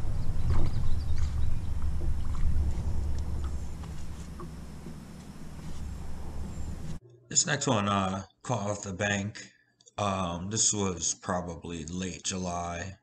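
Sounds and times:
wind rumbling on microphone: 0:00.0 - 0:07.0.

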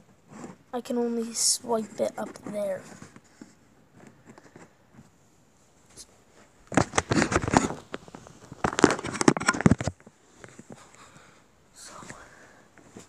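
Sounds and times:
handling noise on phone microphone: 0:00.1 - 0:00.7, 0:01.3 - 0:11.0.

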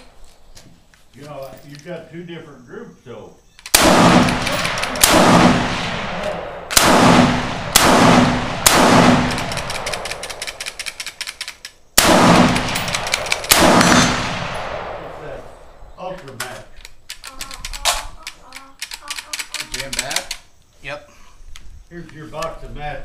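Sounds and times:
rifle shots ringing: 0:03.6 - 0:10.8, 0:12.0 - 0:15.7.

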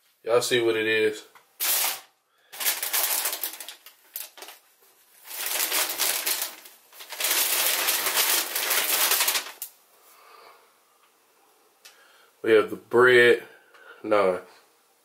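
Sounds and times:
tissue paper rustling: 0:01.6 - 0:09.7.

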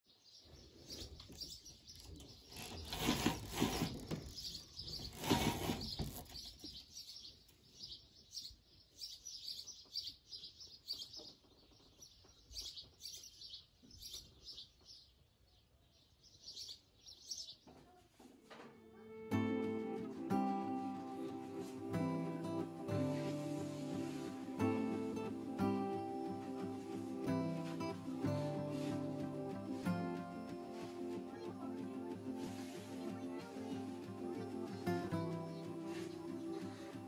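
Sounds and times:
small birds chirping: 0:00.1 - 0:18.0, 0:20.7 - 0:37.0.

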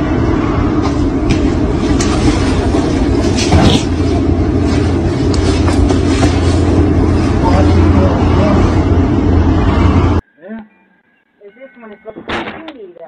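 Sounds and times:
machinery low rumble: 0:00.0 - 0:10.2.

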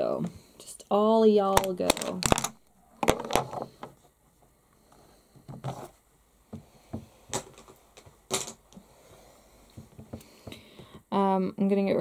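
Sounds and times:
plastic tubes clicking and clattering: 0:01.4 - 0:04.0, 0:07.3 - 0:08.8.

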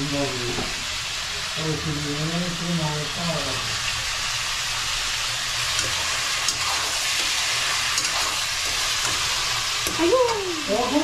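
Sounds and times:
meat sizzling in a pan: 0:00.0 - 0:11.0
metal spoon scraping pan: 0:05.8 - 0:10.0.

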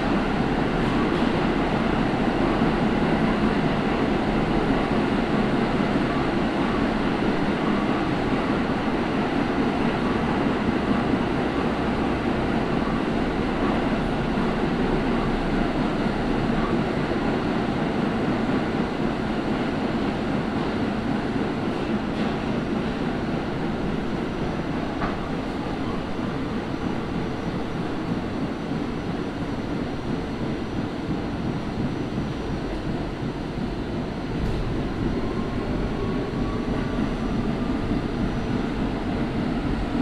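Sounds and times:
subway car wheels rumbling on rails: 0:00.0 - 0:40.0.

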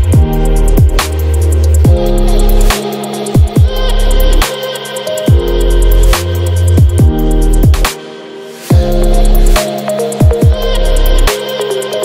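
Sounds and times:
deep sub-bass: 0:00.0 - 0:02.8, 0:03.4 - 0:04.4, 0:05.3 - 0:07.9, 0:08.7 - 0:09.6, 0:10.2 - 0:11.3
electronic chillstep music: 0:00.0 - 0:12.0.

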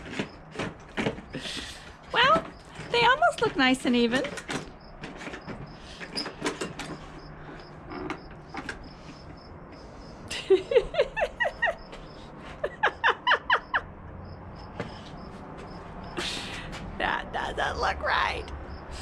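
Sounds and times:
bursts of laughter: 0:10.3 - 0:13.9.

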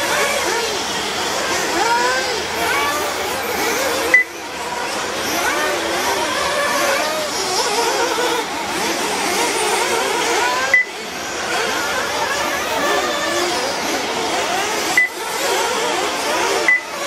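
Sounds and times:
small two-stroke engines revving: 0:00.0 - 0:17.0
short high beep: 0:10.7 - 0:10.9, 0:16.7 - 0:16.9.

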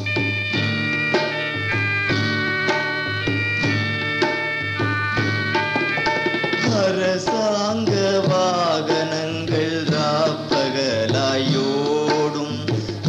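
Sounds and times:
drums: 0:00.0 - 0:13.0
instrumental accompaniment: 0:00.0 - 0:13.0
man singing: 0:06.6 - 0:13.0.

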